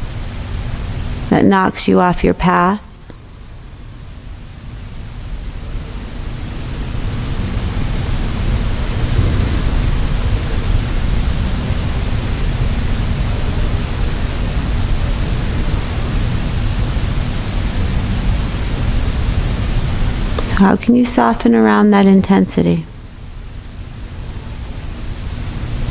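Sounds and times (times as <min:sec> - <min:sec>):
faint low hum: 0:00.0 - 0:25.9
steady broad hiss: 0:02.9 - 0:21.3.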